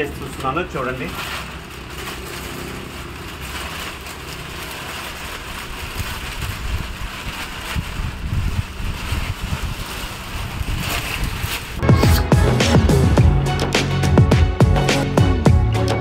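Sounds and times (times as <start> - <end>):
plastic cover rustling and crinkling: 0.0 - 12.2
wind buffeting microphone: 5.5 - 11.8.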